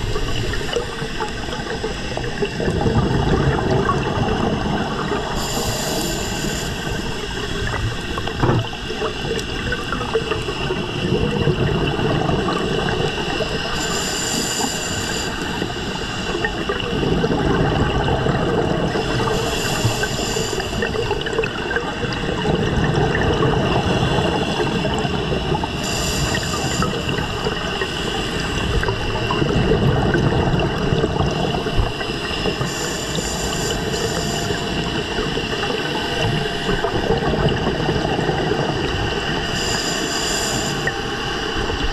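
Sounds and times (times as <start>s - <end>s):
exhaled bubbles rumbling: 0.0s - 41.9s
regulator hissing inhale: 5.2s - 8.1s, 13.6s - 16.8s, 19.0s - 21.2s, 25.6s - 28.8s, 31.8s - 35.1s, 39.4s - 41.1s.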